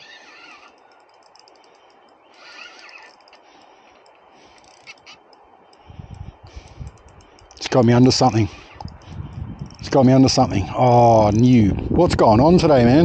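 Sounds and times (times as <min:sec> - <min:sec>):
crow cawing: 0:00.0 - 0:00.8, 0:04.4 - 0:05.3
faint ticking: 0:00.0 - 0:11.7.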